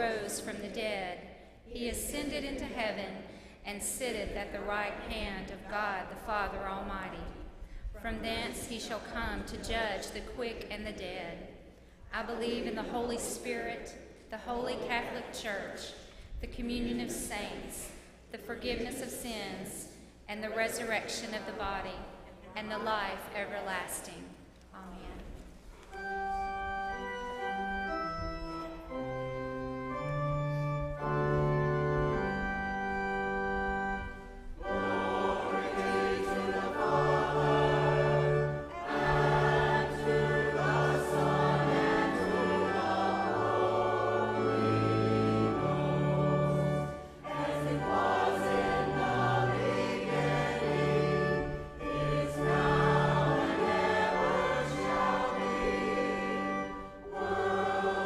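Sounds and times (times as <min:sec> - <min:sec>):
choir singing a hymn: 0:01.8 - 0:07.4, 0:12.2 - 0:15.8, 0:18.7 - 0:23.2, 0:31.0 - 0:58.0
church organ playing chords: 0:25.9 - 0:58.0.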